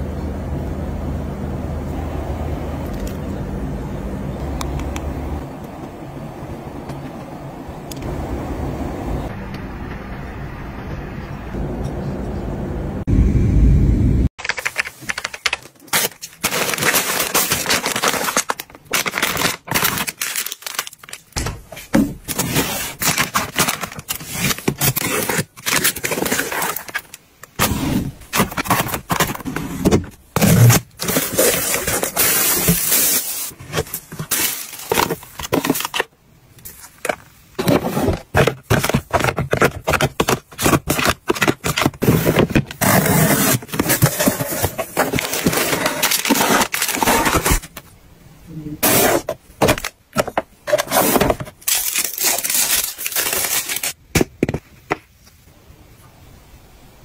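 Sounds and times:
plastic packaging crinkling: 0:14.4 - 0:47.9, 0:48.8 - 0:54.0
boxes and bottles clicking and tapping: 0:37.0 - 0:47.4.

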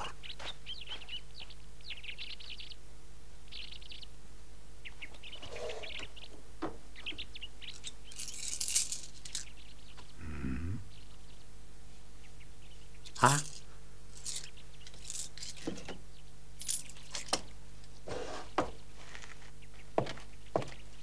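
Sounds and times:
birds chirping: 0:00.0 - 0:21.0
metal coins jingling: 0:07.6 - 0:09.6, 0:13.1 - 0:15.9, 0:16.6 - 0:17.4.

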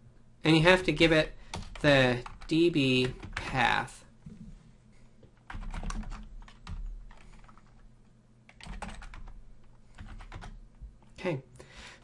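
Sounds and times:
computer keyboard typing: 0:01.5 - 0:03.7, 0:05.4 - 0:07.8, 0:08.5 - 0:10.6.

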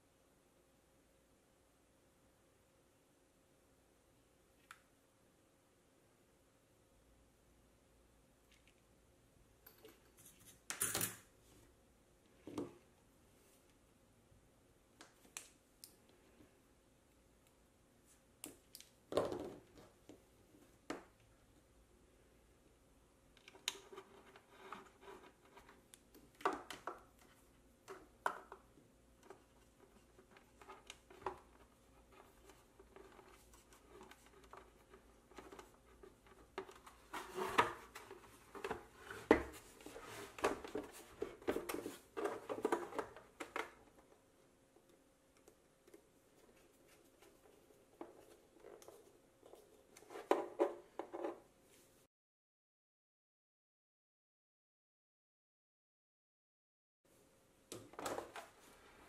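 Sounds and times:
small parts tapping and rustling: 0:09.6 - 0:11.3.

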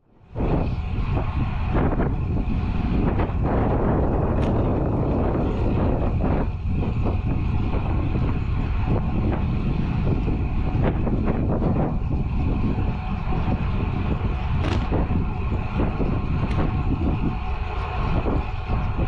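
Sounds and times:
wind rushing over microphone: 0:00.0 - 0:19.0
tyre noise on asphalt: 0:14.0 - 0:18.5.

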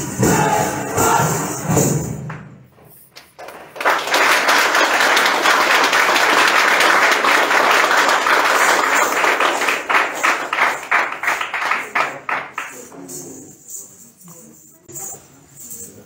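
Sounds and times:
audience applauding: 0:03.2 - 0:13.2.

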